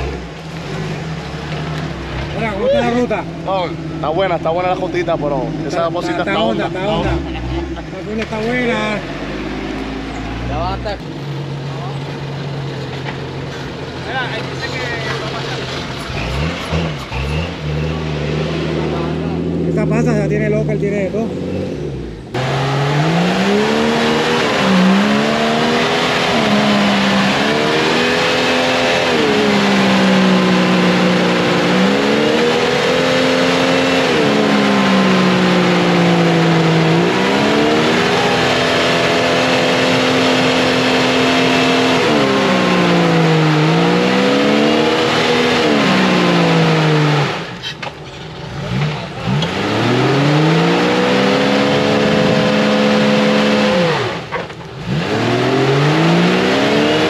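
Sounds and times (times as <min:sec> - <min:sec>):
engine revving in mud: 0:00.0 - 0:57.0.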